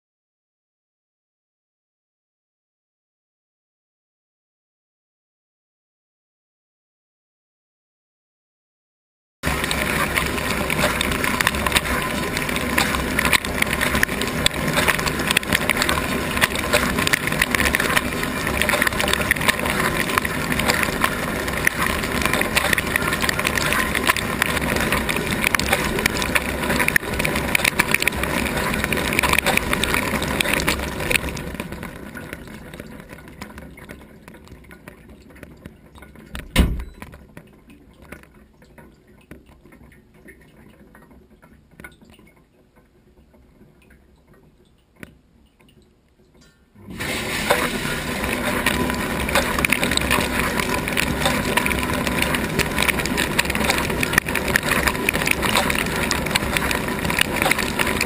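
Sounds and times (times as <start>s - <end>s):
water drips: 9.4s - 58.0s
thud: 36.4s - 37.0s
dishwasher spray rushing: 46.9s - 48.2s.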